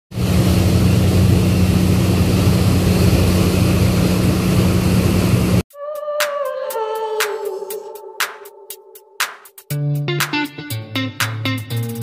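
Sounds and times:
propeller wake churning: 0.1 - 5.6
ship engine drone: 0.1 - 5.6
music: 5.7 - 12.0.

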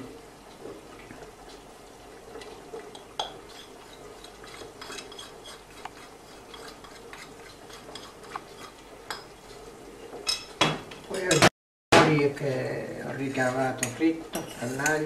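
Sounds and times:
teaspoon scraping ceramic plate: 3.2 - 9.2.

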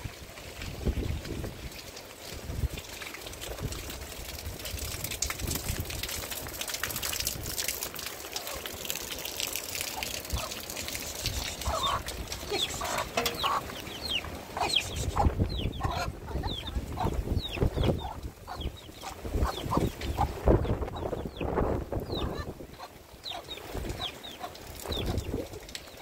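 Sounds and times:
rain hissing: 0.0 - 26.0
hens clucking: 9.8 - 25.4
chicks peeping: 11.4 - 25.4.

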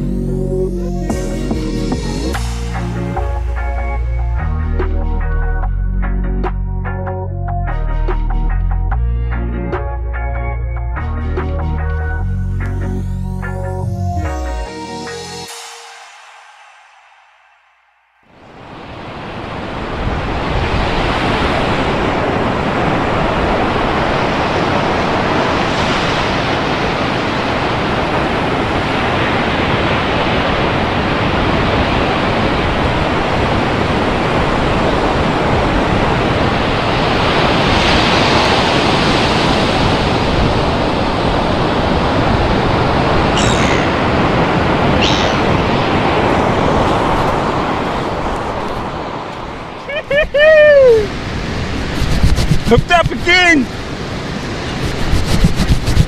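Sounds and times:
surf rushing onto sand beach: 18.4 - 56.0
short high sounds: 43.4 - 44.1, 45.0 - 45.6.

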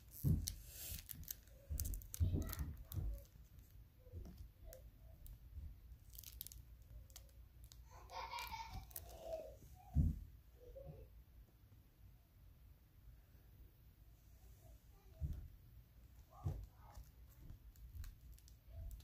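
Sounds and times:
foil wrapper crinkling: 0.0 - 3.8, 6.0 - 9.2
cards clicking and knocking: 0.0 - 4.5.

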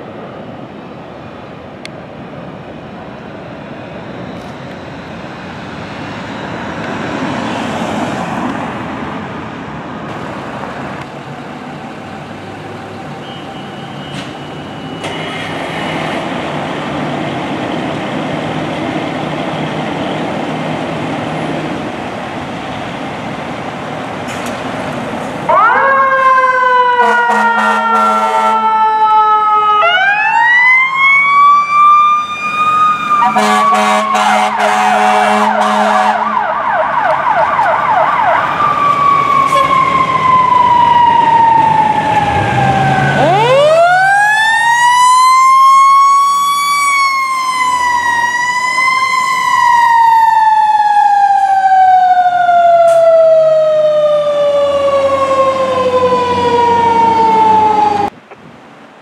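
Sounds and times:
air horn blasts: 27.0 - 28.7, 33.2 - 36.4.

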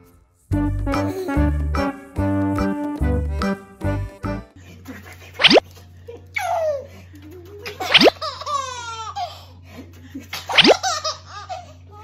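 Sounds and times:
upward-sweeping sound: 5.4 - 5.6
baby laughing and squealing: 7.6 - 9.3, 10.5 - 11.6.

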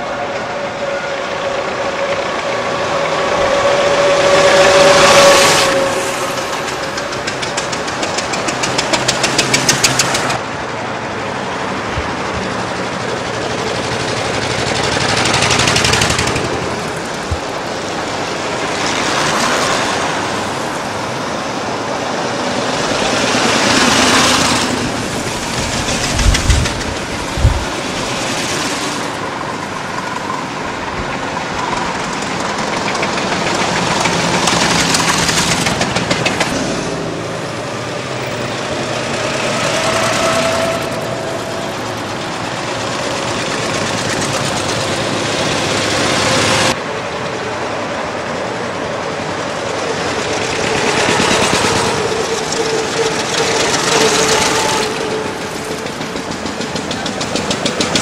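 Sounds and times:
old cars driving past: 0.0 - 58.0
car engine clattering rapidly: 5.6 - 10.5, 11.8 - 20.6, 22.6 - 29.2, 30.6 - 37.0, 38.2 - 46.8, 49.2 - 58.0.

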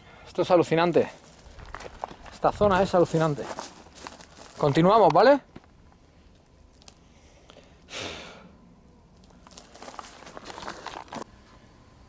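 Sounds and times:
footsteps on forest floor: 0.8 - 5.8, 9.2 - 11.3.

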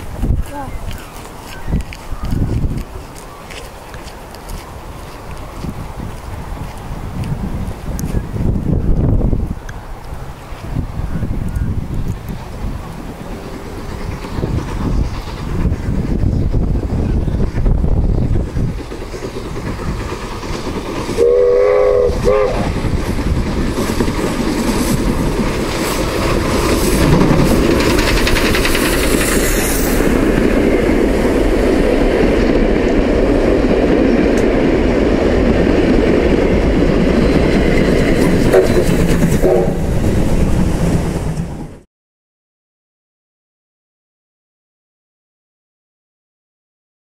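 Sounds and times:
train rolling by: 0.0 - 41.9
steam locomotive whistle: 21.1 - 22.8, 38.4 - 39.9.

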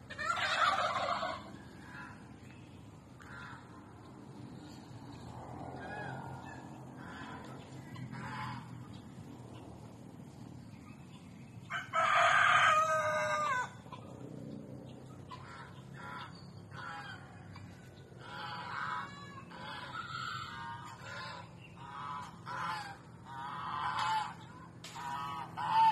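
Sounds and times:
short poultry calls: 0.0 - 2.3, 5.8 - 9.0, 18.2 - 25.9
rooster crowing: 11.7 - 13.9.

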